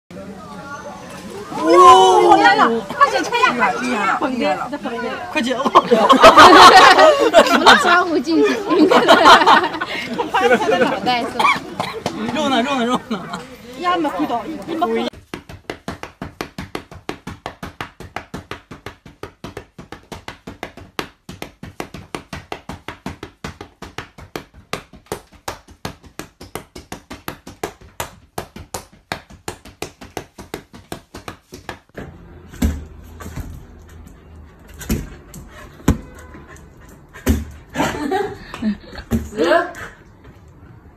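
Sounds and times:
flip-flops slapping: 0:14.6 - 0:33.8.

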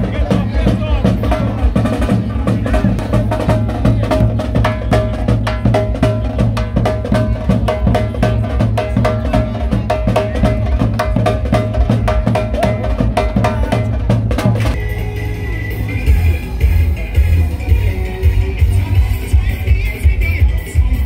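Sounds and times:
bass drum beats: 0:00.0 - 0:21.0.

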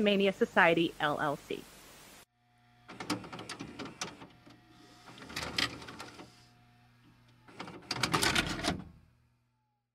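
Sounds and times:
steady electrical hum: 0:00.0 - 0:09.7
motor whir: 0:02.4 - 0:09.9
vcr mechanism clicking and clattering: 0:02.9 - 0:06.4, 0:07.3 - 0:09.0.

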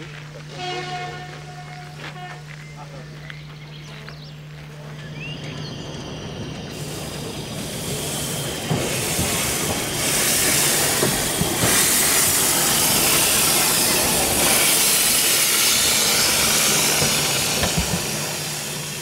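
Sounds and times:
steam locomotive hissing steam: 0:04.7 - 0:19.0.

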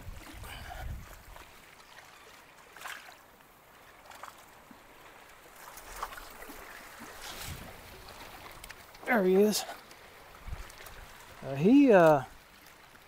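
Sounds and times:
wind gust on microphone: 0:00.0 - 0:01.2, 0:07.3 - 0:07.9
water lapping against rocks: 0:00.0 - 0:13.0.

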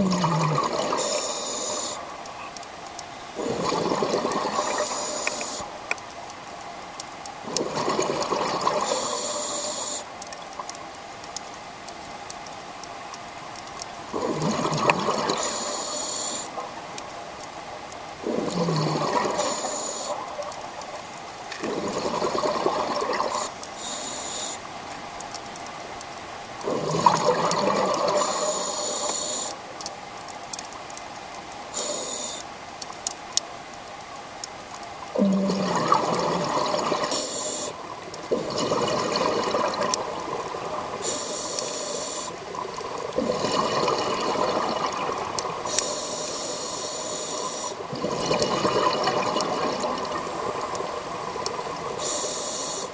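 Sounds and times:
exhaled bubbles rushing: 0:00.0 - 0:01.1, 0:03.4 - 0:04.9, 0:07.4 - 0:08.9, 0:14.2 - 0:15.4, 0:18.2 - 0:19.4, 0:21.6 - 0:23.5, 0:26.7 - 0:28.4, 0:35.2 - 0:37.2, 0:38.3 - 0:41.0, 0:42.4 - 0:45.7, 0:47.8 - 0:52.0
diver breathing through regulator: 0:52.0 - 0:52.9.

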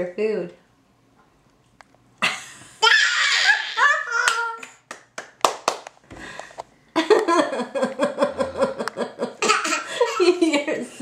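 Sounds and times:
baby laughing: 0:02.8 - 0:04.6, 0:09.3 - 0:10.5
baby clapping hands: 0:04.2 - 0:05.9.

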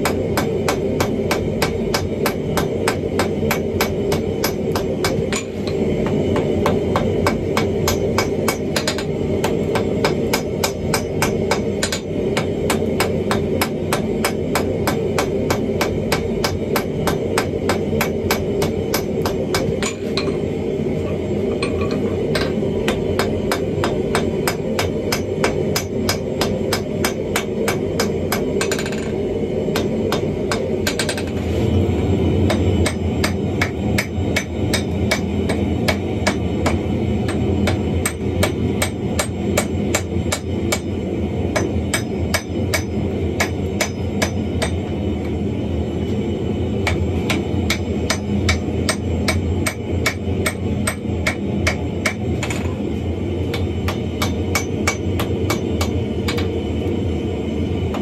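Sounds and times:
hammer ringing on anvil: 0:41.6 - 0:44.8, 0:54.2 - 0:56.5.

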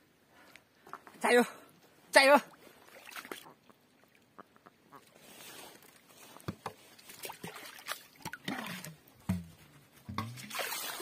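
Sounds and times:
small water splashes and drips: 0:02.5 - 0:04.4, 0:05.7 - 0:09.5, 0:10.1 - 0:11.0
hand sloshing in water: 0:10.2 - 0:11.0.

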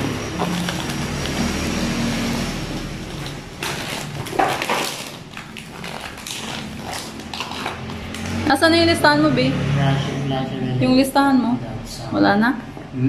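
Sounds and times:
bubble wrap crinkling: 0:00.0 - 0:08.4.

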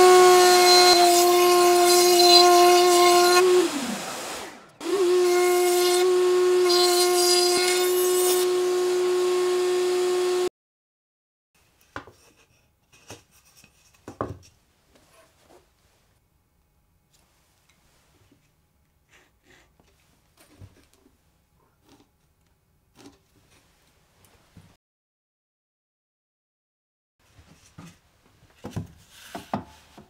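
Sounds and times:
router whining: 0:00.0 - 0:10.5.

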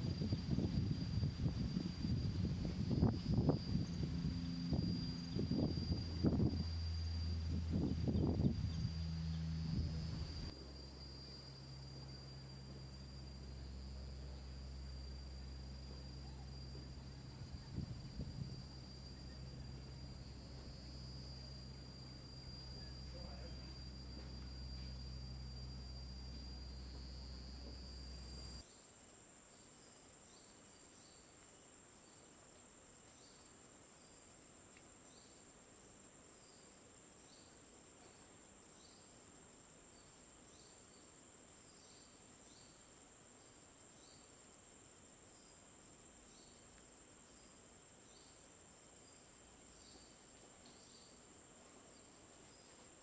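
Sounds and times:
low rumble: 0:00.0 - 0:28.6
insect chirps: 0:00.0 - 0:53.0
insects droning: 0:00.0 - 0:53.0.

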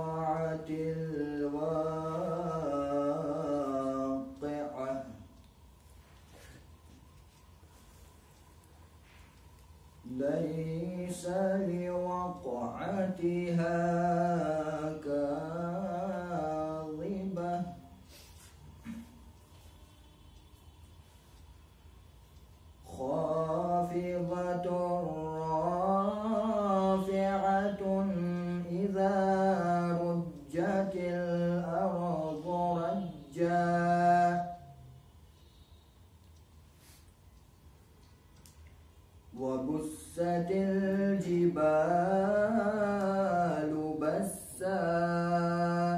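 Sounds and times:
man chanting recitation: 0:00.0 - 0:05.5, 0:10.0 - 0:18.0, 0:22.7 - 0:35.0, 0:39.3 - 0:45.9.

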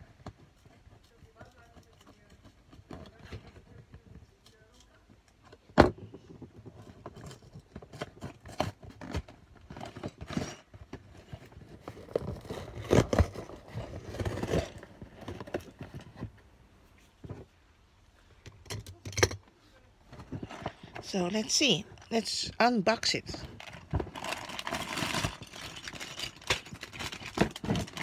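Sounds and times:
cardboard scraping and tearing: 0:07.1 - 0:16.3, 0:23.4 - 0:28.0.

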